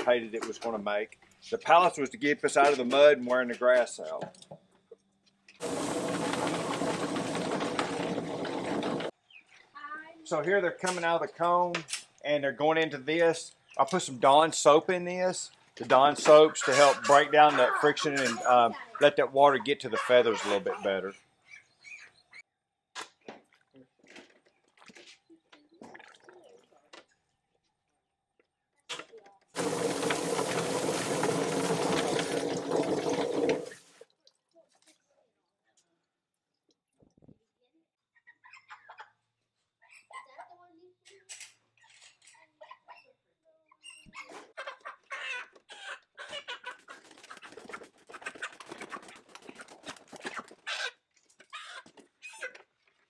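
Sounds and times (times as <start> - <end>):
chicken plucker tumbling: 5.6 - 9.1, 29.6 - 33.8, 46.6 - 50.7
hose spraying water: 5.6 - 9.1, 29.6 - 34.0
chickens squawking: 16.2 - 22.4, 44.6 - 51.0.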